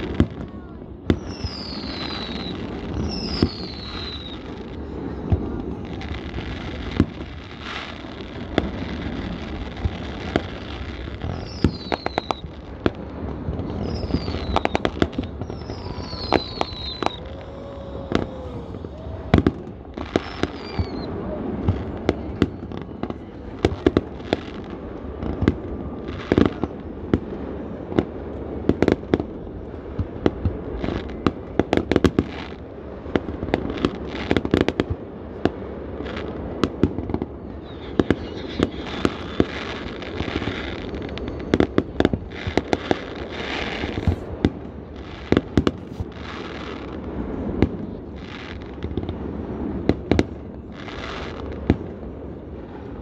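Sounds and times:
fireworks bangs and crackling: 0.0 - 53.0
high falling whistles: 1.2 - 4.6, 11.3 - 12.5, 13.6 - 19.4, 20.1 - 21.2.

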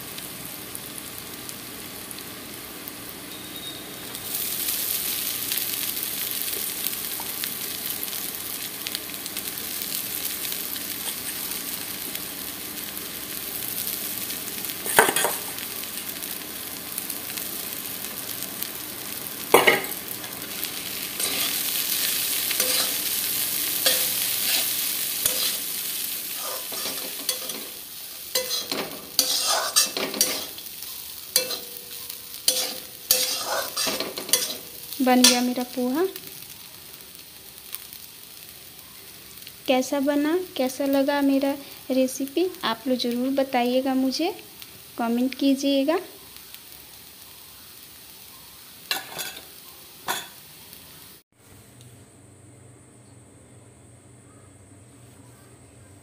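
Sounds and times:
oil sizzling in a pan: 0.0 - 51.8
spatula scraping a steel pan: 28.4 - 30.5, 32.5 - 34.6.

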